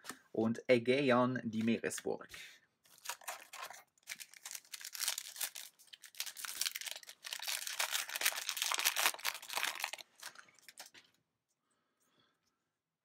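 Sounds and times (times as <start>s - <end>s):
foil wrapper crinkling and tearing: 2.9s - 11.0s.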